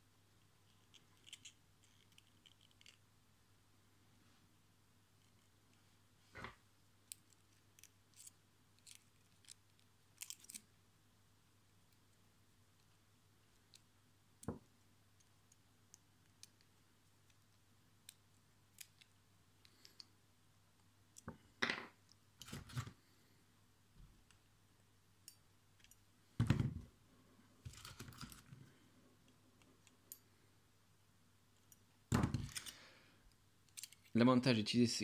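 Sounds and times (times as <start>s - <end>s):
small metal tools clicking: 33.7s - 34.1s.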